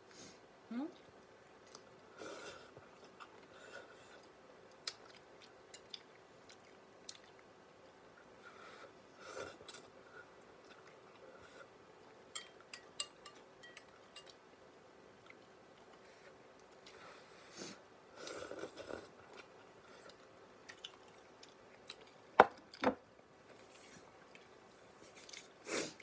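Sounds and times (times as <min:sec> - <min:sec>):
person chewing noodles: 0:01.1 - 0:07.5, 0:08.8 - 0:11.8, 0:18.2 - 0:22.3.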